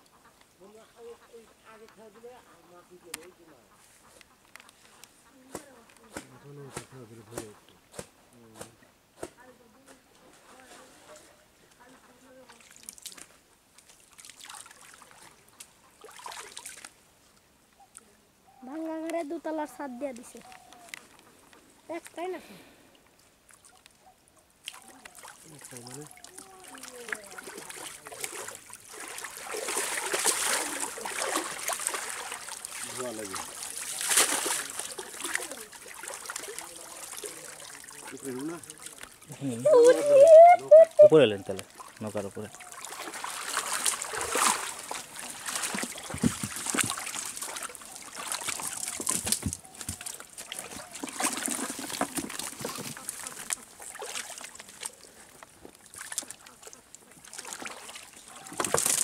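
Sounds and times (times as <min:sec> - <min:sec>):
water splashing and churning: 0:12.0 - 0:17.0, 0:24.6 - 0:59.0
net knocking on wooden boat: 0:46.1 - 0:47.0.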